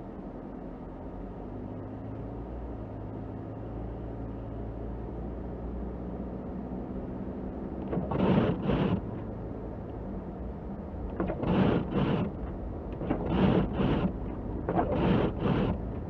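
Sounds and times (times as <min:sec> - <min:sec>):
car engine and tyre drone: 0:00.0 - 0:16.0
windshield wipers swishing: 0:07.8 - 0:09.0, 0:11.1 - 0:16.0.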